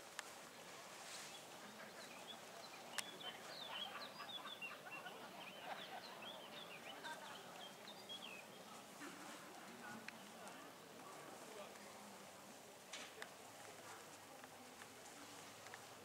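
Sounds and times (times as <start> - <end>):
birds chirping: 1.3 - 8.8.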